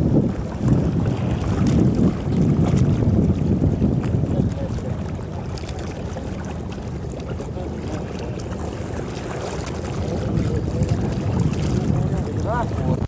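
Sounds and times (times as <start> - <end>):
choppy sea water splashing: 0.0 - 13.0
wind on the microphone: 0.0 - 13.0.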